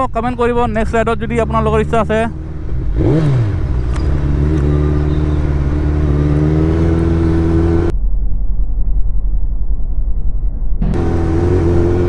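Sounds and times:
motorcycle engine running: 0.7s - 7.9s, 10.8s - 12.0s
muffled low rumble: 7.9s - 11.2s.

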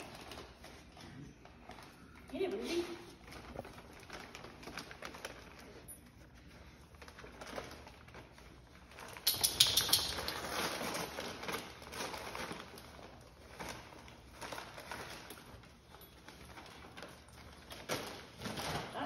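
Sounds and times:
wrapping paper crinkling and tearing: 0.0s - 9.3s, 10.1s - 19.0s.

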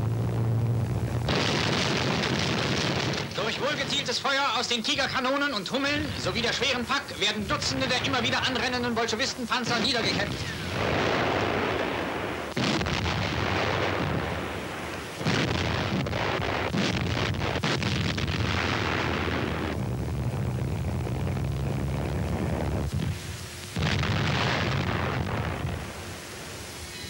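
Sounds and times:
long rumble: 0.0s - 3.8s, 10.2s - 27.0s
explosions: 0.0s - 5.2s, 5.8s - 26.2s
heavy gunfire: 1.2s - 5.2s, 9.6s - 20.4s, 21.8s - 26.3s.

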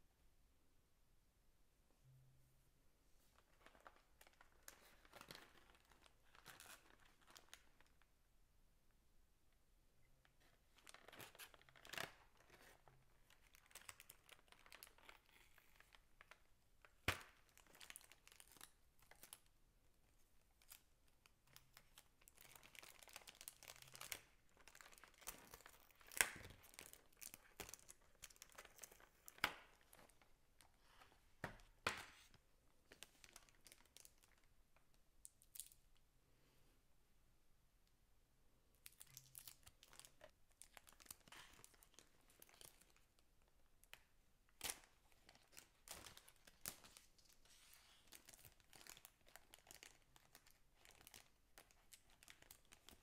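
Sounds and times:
plastic packaging crinkling: 3.4s - 8.0s, 10.7s - 19.5s, 20.6s - 30.7s, 32.9s - 34.5s, 38.8s - 43.2s, 43.8s - 53.0s.

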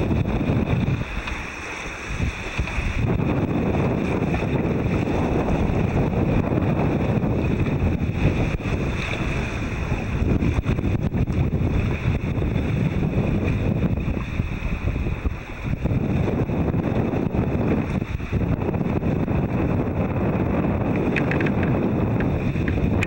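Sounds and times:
wash of the sea: 0.0s - 23.0s
wind buffeting microphone: 0.0s - 23.0s.

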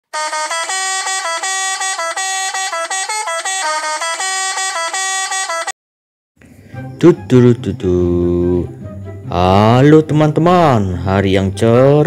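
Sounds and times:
musical truck air horn: 0.1s - 5.8s.

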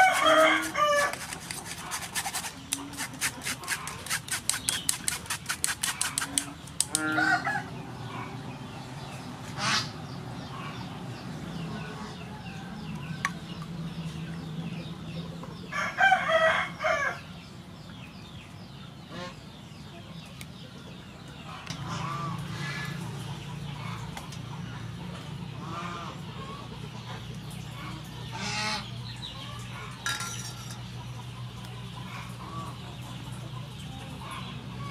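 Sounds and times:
rooster crowing: 0.0s - 1.2s, 7.1s - 7.7s
metal spoon scraping a sieve: 0.0s - 6.9s, 30.0s - 30.9s
chickens clucking: 0.0s - 8.5s, 19.1s - 34.9s.

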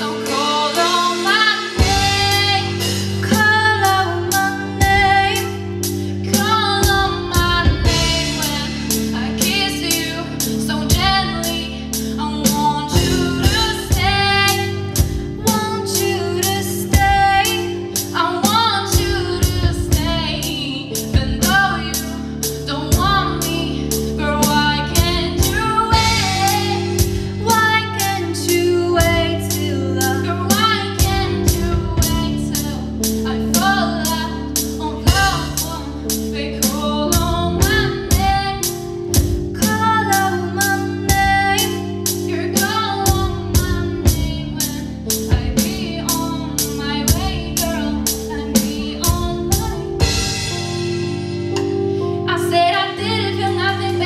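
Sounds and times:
woman singing lead vocals: 0.0s - 50.7s, 51.5s - 54.0s
drum kit cymbal beat: 0.0s - 52.3s
keyboard: 0.0s - 54.0s
pop-rock band playing: 0.0s - 54.0s.

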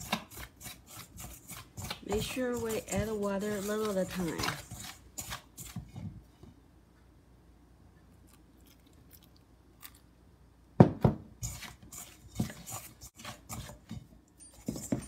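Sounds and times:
chopsticks scraping a metal bowl: 0.0s - 6.0s, 11.4s - 14.0s.

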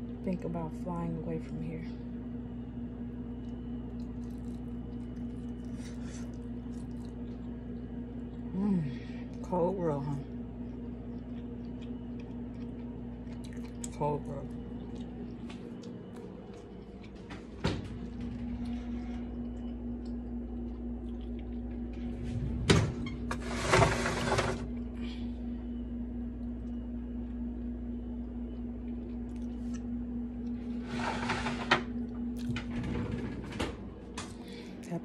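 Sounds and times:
microwave oven humming: 0.0s - 35.0s.

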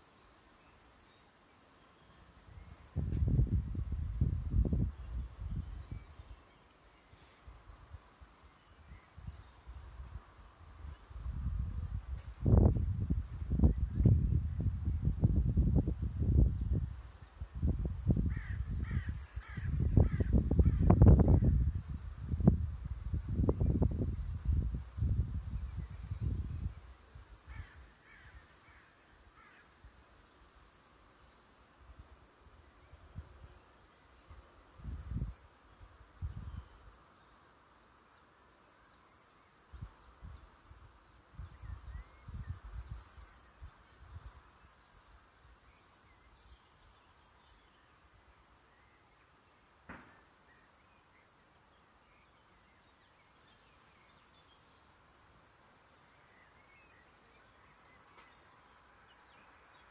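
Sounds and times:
high pulsing insect trill: 0.0s - 59.9s
faint bird chirps: 5.0s - 11.0s.

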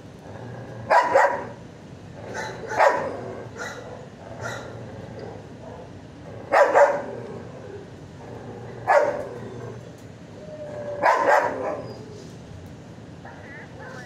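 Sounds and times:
dog barking: 0.9s - 1.6s, 2.3s - 5.9s, 6.5s - 7.2s, 8.8s - 9.3s, 11.0s - 11.9s.

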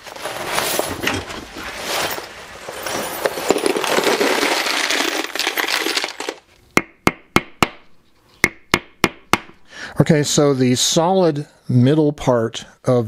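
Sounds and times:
plastic rustling: 0.0s - 6.6s
small metal parts clinking: 1.9s - 6.5s.

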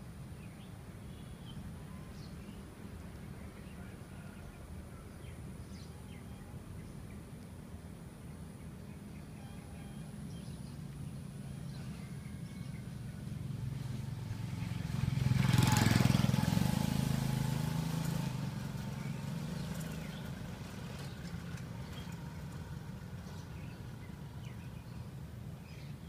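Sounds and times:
vehicle engine passing: 11.6s - 24.9s.

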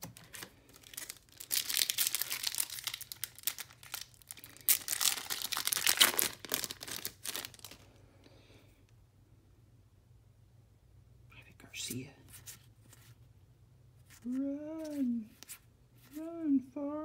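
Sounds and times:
wrapper tearing and crinkling: 0.0s - 7.9s.

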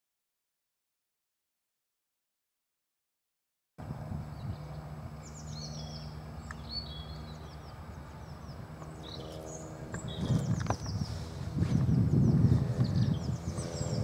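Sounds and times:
songbirds chirping: 3.9s - 14.0s.

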